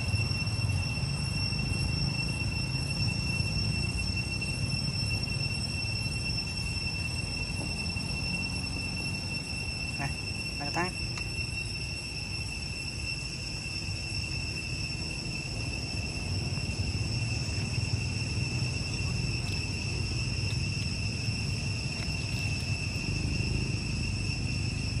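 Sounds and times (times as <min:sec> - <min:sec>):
insects droning: 0:00.0 - 0:25.0
low outdoor rumble: 0:15.0 - 0:25.0.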